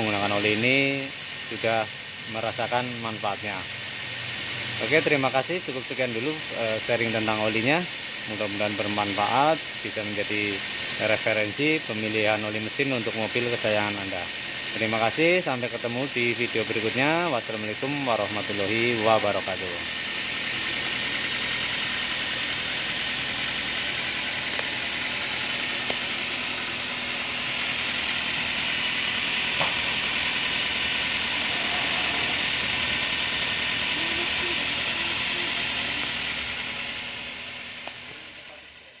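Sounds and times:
car engine idling: 0.0 - 39.0
faint engine ticks: 23.8 - 24.8.

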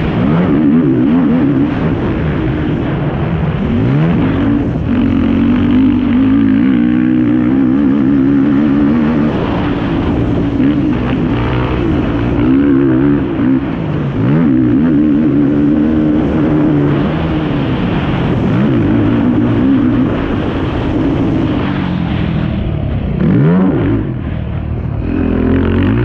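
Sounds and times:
quad engine revving high: 0.0 - 26.0.

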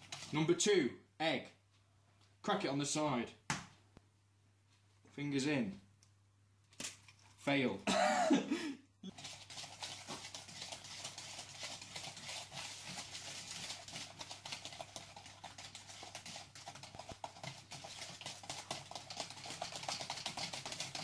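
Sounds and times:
whisk clicking against bowl: 0.0 - 0.4, 9.1 - 21.0.

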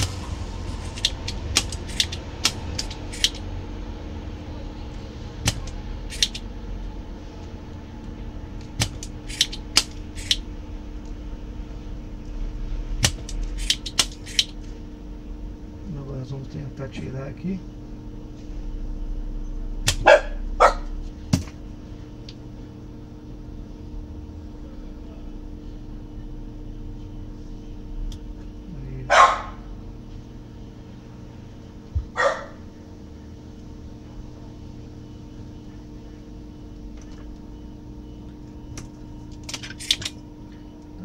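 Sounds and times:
steady hum: 0.0 - 41.0
solder sucker snapping: 0.8 - 3.4, 5.4 - 6.4, 8.7 - 10.4, 13.0 - 14.5.

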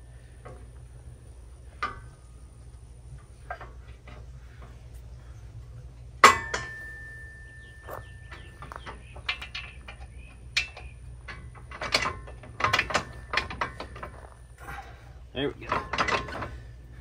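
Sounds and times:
metal clicks and knocks: 1.7 - 2.3, 6.2 - 14.4, 15.5 - 16.7
ringing metal clank: 6.2 - 14.3.

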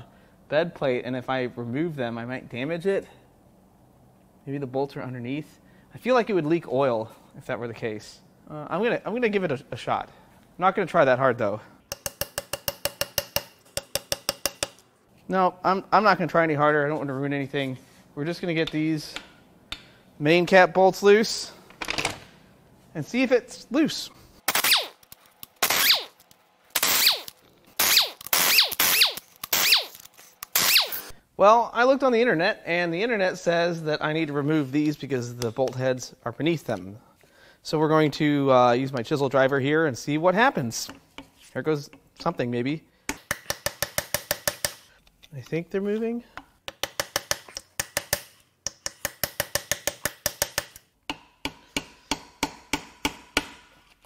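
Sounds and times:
impact wrench hammering: 11.9 - 14.8, 26.8 - 31.1, 43.1 - 44.9, 46.7 - 53.7.

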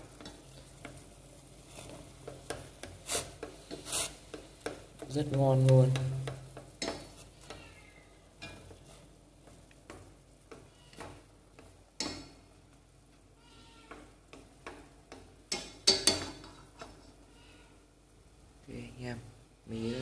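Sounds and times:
chopsticks tapping metal pot: 2.2 - 7.6, 8.4 - 12.4, 13.9 - 17.0.

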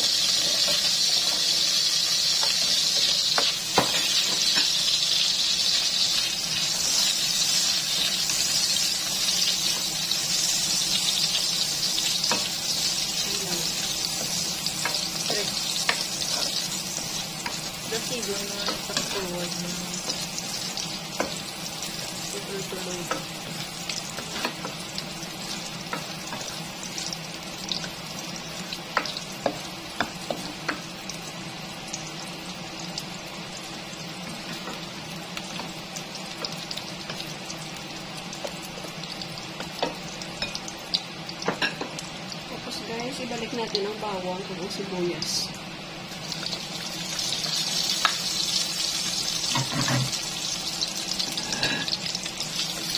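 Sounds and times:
spatula stirring in pan: 0.0 - 30.8
sausage sizzling in oil: 0.0 - 52.9.

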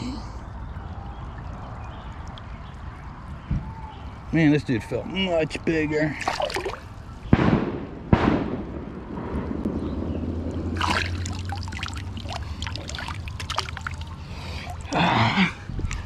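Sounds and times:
water trickling and dripping: 0.0 - 7.2, 9.2 - 16.0
water splashing: 6.1 - 7.0, 10.3 - 16.0.

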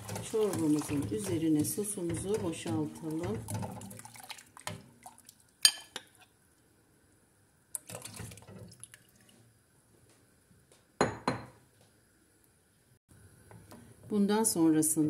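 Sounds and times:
sauce splashing into pot: 3.4 - 6.0
glass bowl clinking on pot: 5.6 - 6.2.

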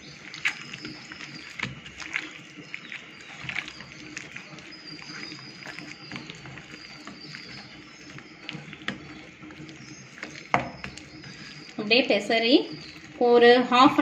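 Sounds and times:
hands squelching wet coating: 0.0 - 14.0.

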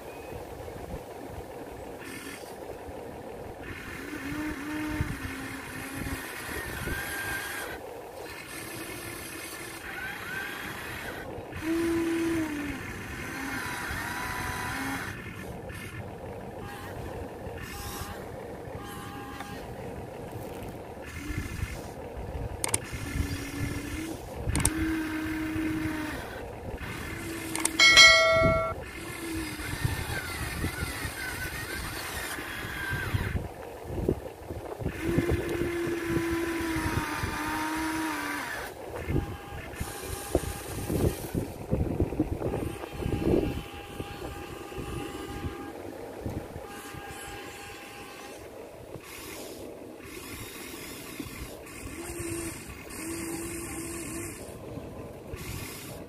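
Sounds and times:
small electric motors whining: 0.0 - 56.0
loud pitched tone: 27.8 - 28.8.

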